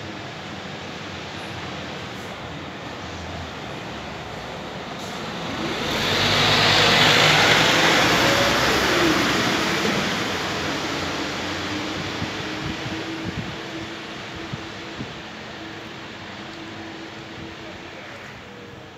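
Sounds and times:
motor vehicle passing by: 5.1 - 11.2.

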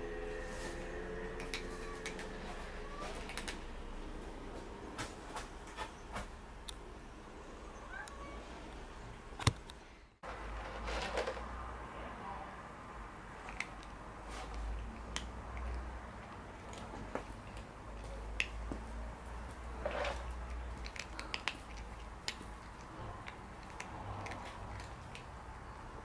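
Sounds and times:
cat chewing with crunching clicks: 20.2 - 26.0.

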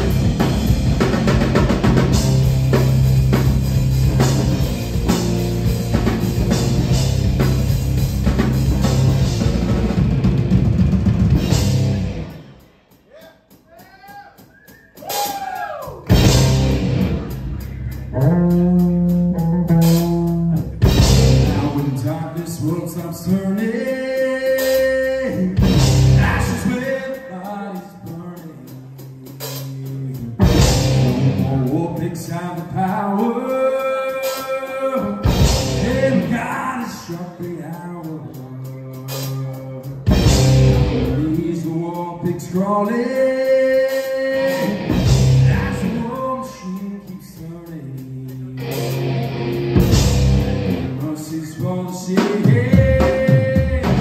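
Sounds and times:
rock band playing: 0.0 - 15.4, 16.0 - 54.0
sliding bending guitar notes: 16.1 - 22.0, 30.4 - 31.8, 48.6 - 51.0.

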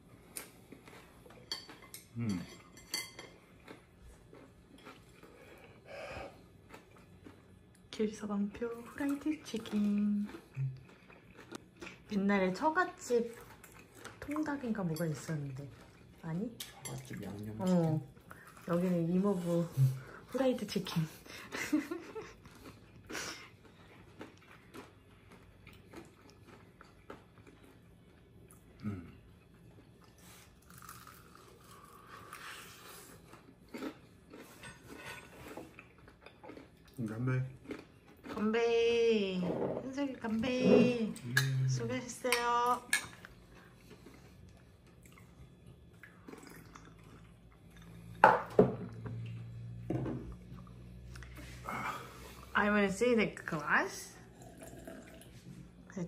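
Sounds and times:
man chewing crunchy food: 0.0 - 7.9, 9.5 - 12.1, 13.3 - 14.2, 22.0 - 38.4, 43.1 - 52.5, 54.3 - 55.6
low hum: 46.8 - 56.0.

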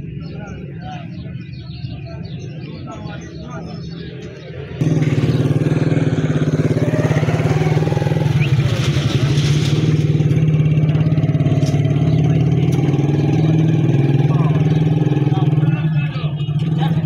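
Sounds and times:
small engine running: 4.8 - 15.7.

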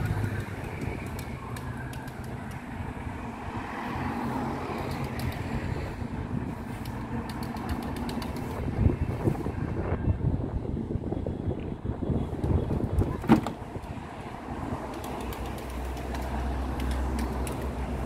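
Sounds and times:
road noise: 0.0 - 18.0
vehicle engine hum: 0.0 - 18.0.

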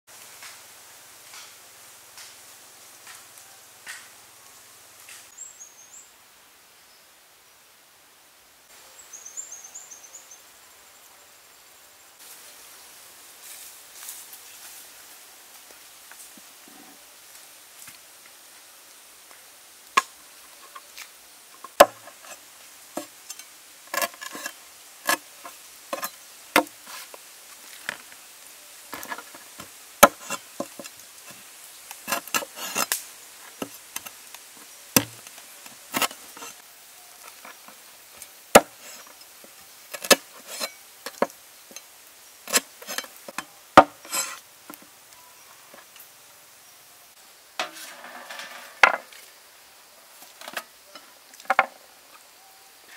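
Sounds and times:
cleaver chopping on wooden board: 21.7 - 22.0, 35.0 - 35.2, 38.6 - 38.8, 43.8 - 44.1.

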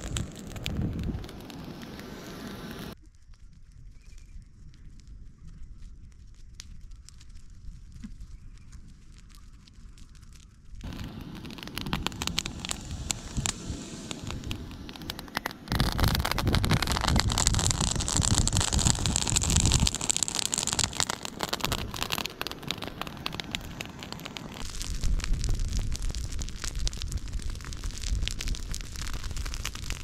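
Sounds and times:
rushing noise with low rumble: 0.0 - 3.0, 10.8 - 30.0
grass fire crackling and popping: 0.0 - 30.0.

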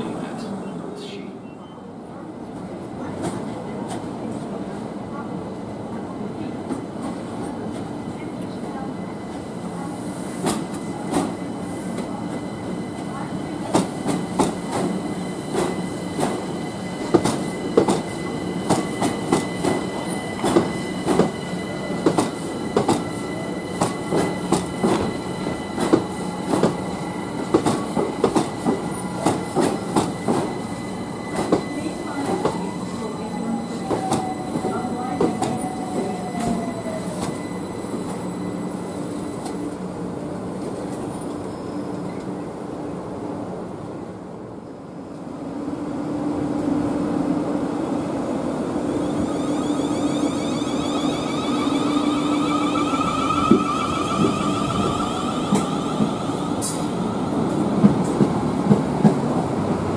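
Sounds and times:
wheel squeal: 49.3 - 56.4.

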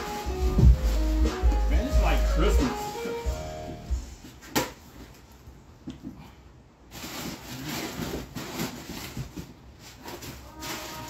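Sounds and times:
plastic and cardboard rustling: 0.0 - 3.3, 6.8 - 11.0.

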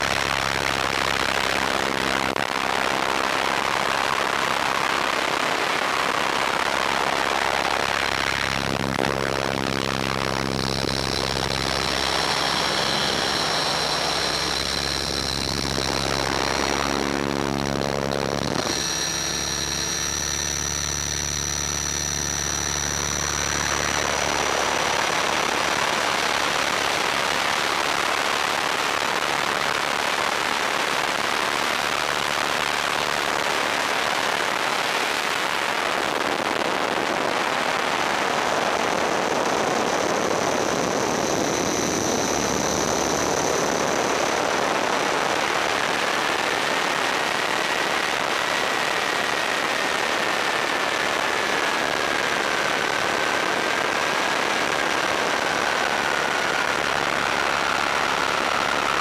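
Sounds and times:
model helicopter motor whine: 6.5 - 30.5, 38.8 - 59.0
rushing wind and rotor: 9.8 - 18.6.

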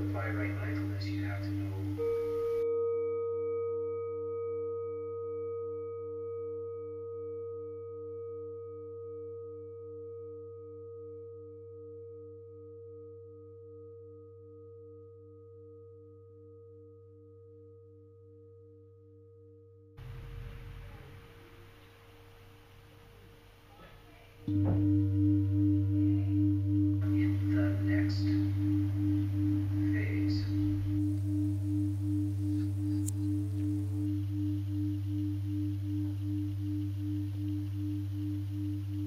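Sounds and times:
steady low hum: 0.0 - 2.7, 20.0 - 39.0
singing bowl ringing: 0.0 - 23.4, 24.4 - 39.0
noisy sound: 20.0 - 39.0.

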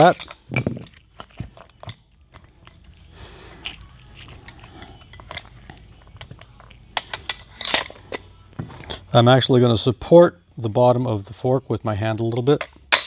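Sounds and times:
metal parts clicking and knocking: 0.0 - 3.0, 3.6 - 9.0.

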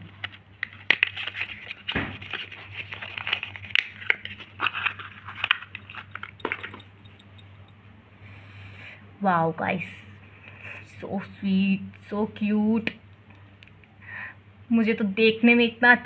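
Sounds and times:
cardboard and plastic crinkling: 0.0 - 6.7
faint low hum: 0.0 - 16.0.

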